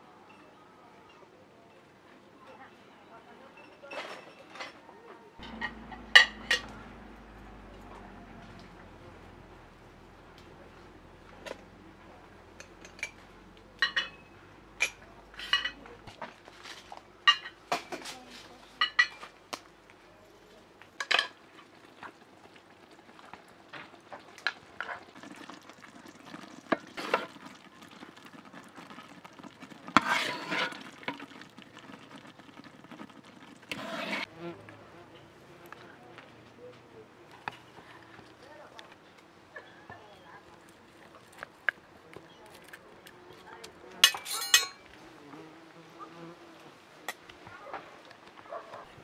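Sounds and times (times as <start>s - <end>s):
dishes clinking on a tray: 3.6s - 4.8s, 5.4s - 7.9s, 13.8s - 16.0s, 17.3s - 18.2s, 18.8s - 19.3s, 44.0s - 44.9s
ladle scraping metal pot: 5.4s - 9.0s, 13.8s - 16.0s, 25.2s - 34.3s, 44.0s - 44.9s.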